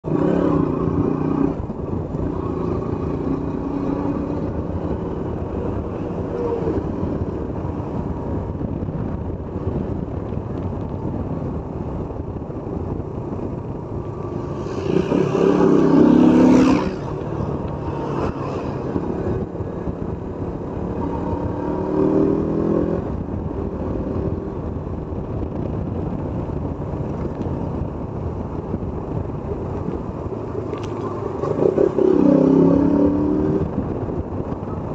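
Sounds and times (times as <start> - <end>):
wind rushing over microphone: 0.0 - 34.9.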